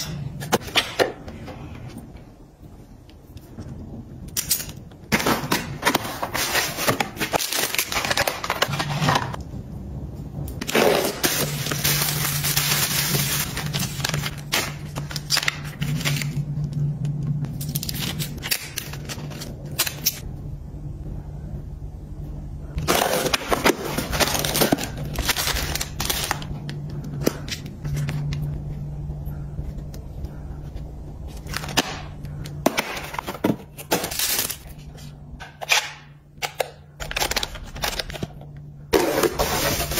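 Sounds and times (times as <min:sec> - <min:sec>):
packaging crinkling and tearing: 0:04.6 - 0:09.4, 0:10.6 - 0:16.9, 0:17.5 - 0:20.2, 0:22.8 - 0:28.4, 0:31.3 - 0:35.9, 0:37.0 - 0:38.4.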